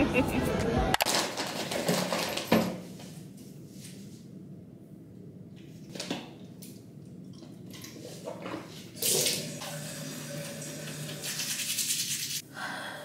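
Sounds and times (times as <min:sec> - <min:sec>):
tap water running into sink: 0:09.0 - 0:12.4.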